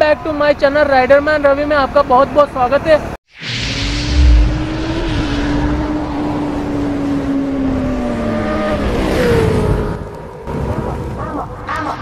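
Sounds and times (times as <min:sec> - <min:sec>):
low boom: 0:03.4 - 0:08.1
motorcycle engine drone: 0:03.4 - 0:11.2.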